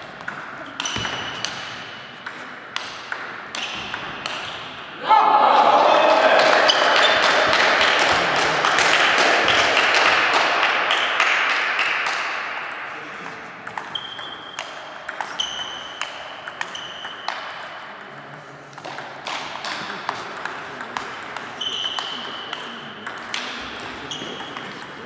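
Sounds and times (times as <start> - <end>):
shoes squeaking on floor: 13.9 - 14.6, 15.2 - 16.0, 21.5 - 22.2, 24.0 - 24.8.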